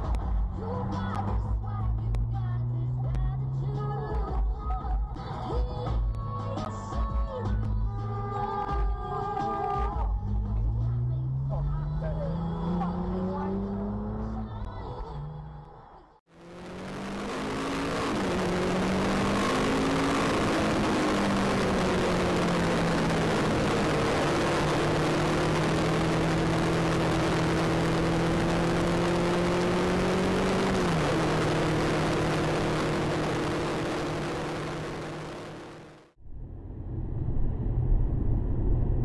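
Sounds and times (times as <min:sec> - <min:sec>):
car engine drone: 0:00.0 - 0:39.0
road and wind noise: 0:00.0 - 0:39.0.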